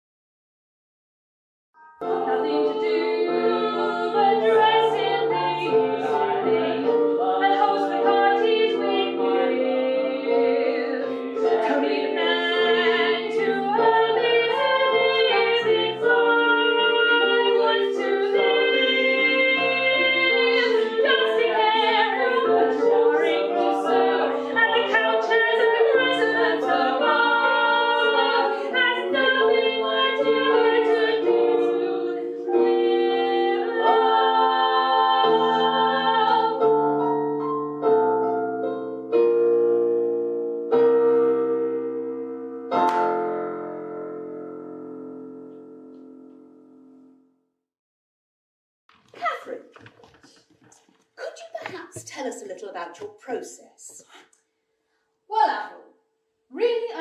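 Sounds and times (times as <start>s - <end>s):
man and women singing in harmony: 2.0s - 37.3s.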